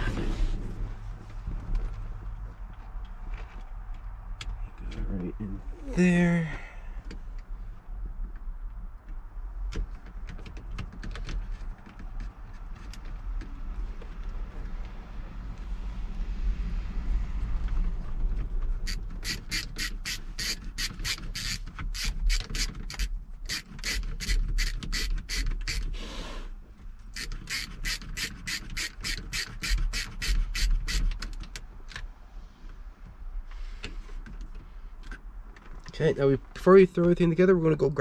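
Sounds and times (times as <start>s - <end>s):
hand ratchet clicking: 18.8s - 25.9s, 27.2s - 31.4s.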